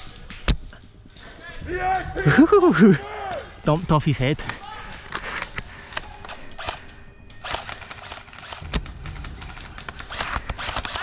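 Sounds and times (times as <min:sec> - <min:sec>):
quiet background music: 0:00.0 - 0:11.0
twigs cracking: 0:07.4 - 0:11.0.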